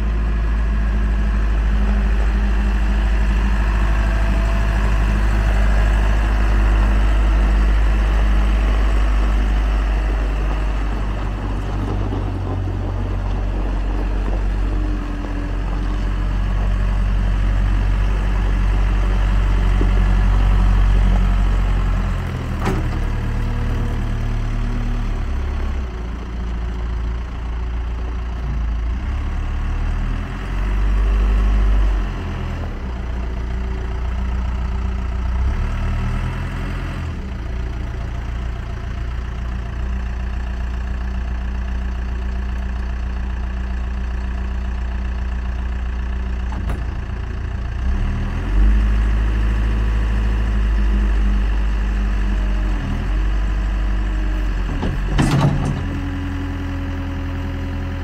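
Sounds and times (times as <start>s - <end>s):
diesel engine revving: 0.0s - 58.0s.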